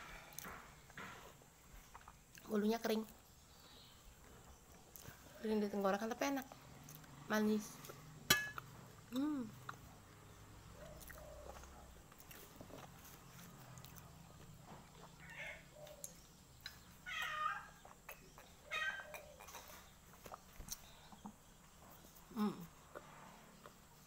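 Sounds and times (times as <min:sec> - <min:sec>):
cat meowing: 0:17.1 - 0:17.8.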